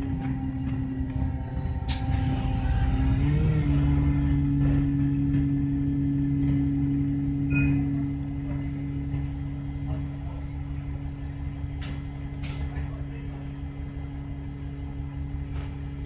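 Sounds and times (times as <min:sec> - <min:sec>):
bus engine drone: 0:00.0 - 0:16.0
short electronic beep: 0:07.3 - 0:08.1.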